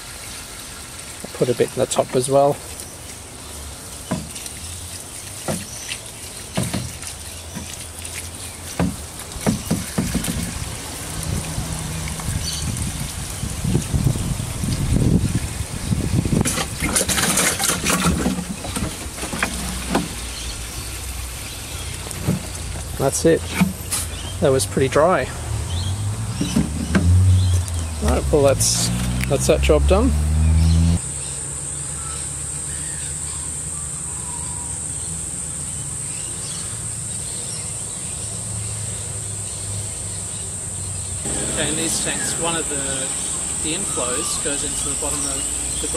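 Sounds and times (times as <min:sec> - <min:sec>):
water pouring down a tube: 0:00.0 - 0:20.4
shrill insect chorus: 0:30.7 - 0:45.9.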